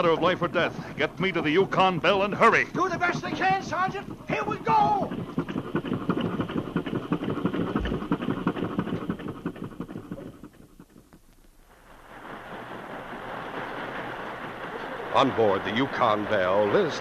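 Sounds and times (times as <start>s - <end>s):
motorboat engine chugging: 0.0s - 11.2s
steady rushing noise: 0.0s - 17.0s.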